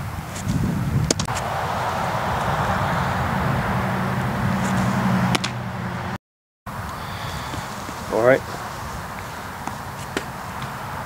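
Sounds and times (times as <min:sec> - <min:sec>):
low mechanical drone: 0:01.4 - 0:06.2
baseball smacking into glove: 0:04.6 - 0:05.6, 0:09.6 - 0:10.8.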